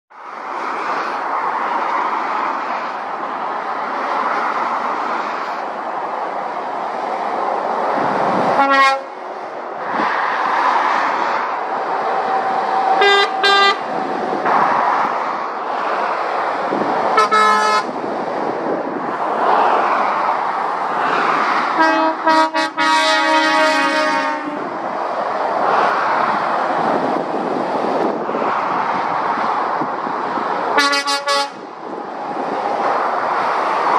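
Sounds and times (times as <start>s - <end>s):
traffic passing at speed: 0.1s - 33.9s
lorry horn blasts: 8.6s - 9.1s, 13.0s - 13.8s, 17.2s - 17.9s, 21.8s - 24.6s, 30.8s - 31.6s.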